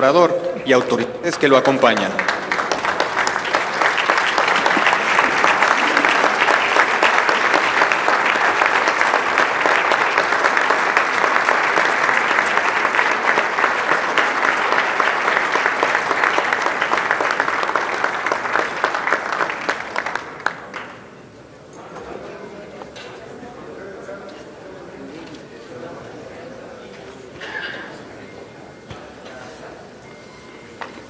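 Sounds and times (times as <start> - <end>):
large audience applauding: 0.7 - 21.2.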